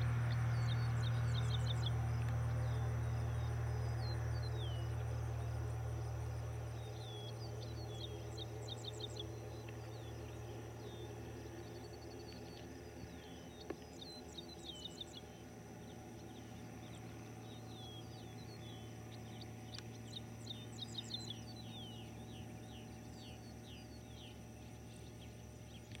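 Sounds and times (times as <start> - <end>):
distant propeller plane drone: 0.0 - 26.0
small birds chirping: 0.0 - 26.0.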